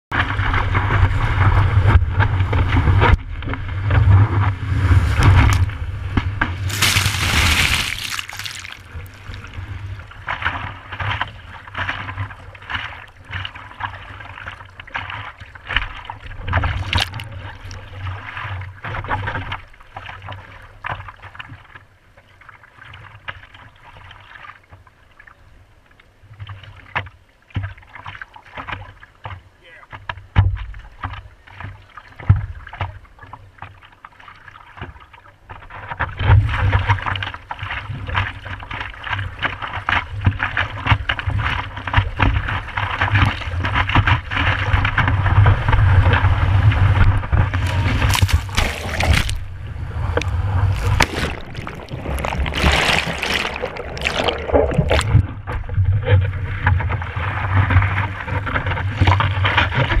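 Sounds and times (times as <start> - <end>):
sea water splashing and rushing: 3.8 - 20.3, 39.9 - 60.0
hands stroking water: 6.7 - 9.8, 16.6 - 17.9, 47.6 - 49.5, 50.1 - 55.2.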